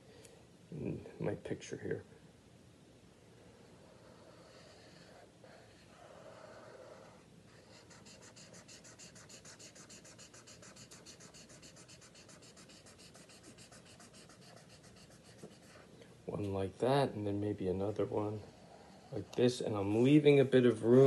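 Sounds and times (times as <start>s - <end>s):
marker scribbling on paper: 4.2s - 15.9s.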